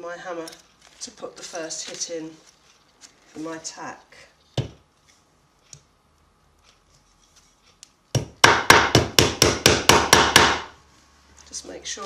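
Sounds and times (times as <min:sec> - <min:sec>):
tack hammer striking into wood: 0:08.1 - 0:10.8.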